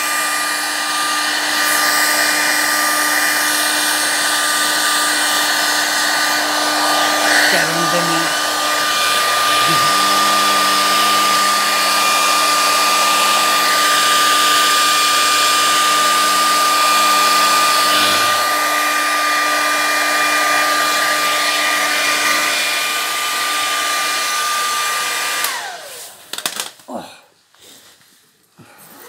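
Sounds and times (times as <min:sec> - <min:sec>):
motor whine: 0:00.0 - 0:26.1.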